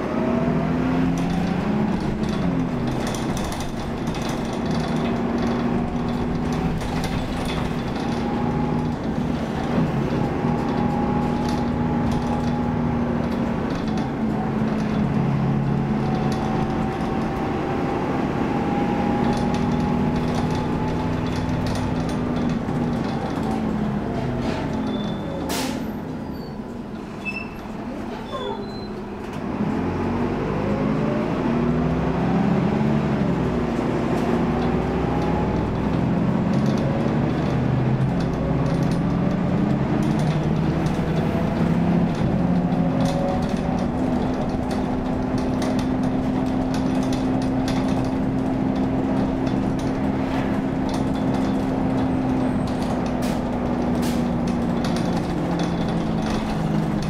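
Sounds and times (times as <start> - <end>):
bus engine: 0.0 - 57.0
road and tyre noise: 0.0 - 57.0.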